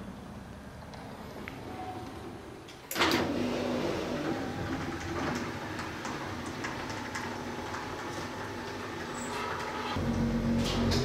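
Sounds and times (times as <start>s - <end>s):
garage door opener humming: 2.7s - 11.0s
garage door clunk: 2.8s - 11.0s.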